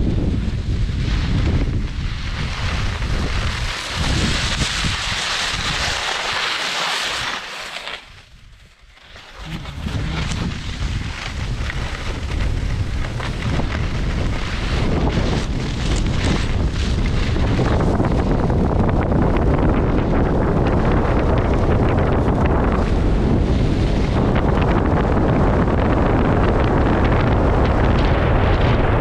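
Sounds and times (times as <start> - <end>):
wind buffeting microphone: 0.0 - 6.4, 8.1 - 29.0.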